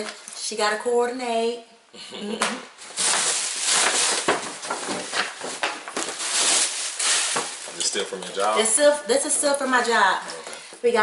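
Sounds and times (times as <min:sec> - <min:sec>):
woman speaking: 0:00.0 - 0:01.7, 0:08.6 - 0:11.0
tissue paper rustling and crinkling: 0:02.8 - 0:08.9.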